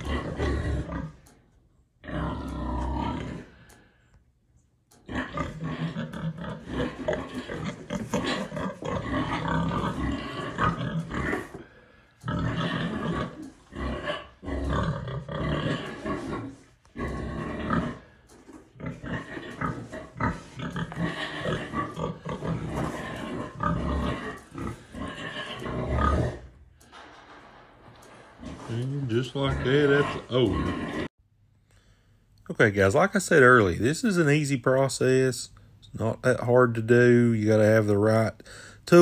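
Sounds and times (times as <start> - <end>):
pigs calling: 0.0 - 1.4, 2.0 - 3.9, 5.0 - 27.3, 27.9 - 31.1.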